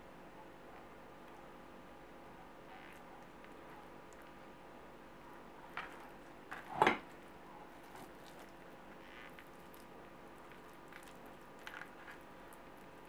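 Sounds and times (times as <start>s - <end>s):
fingers squishing meat stuffing: 9.3s - 13.0s.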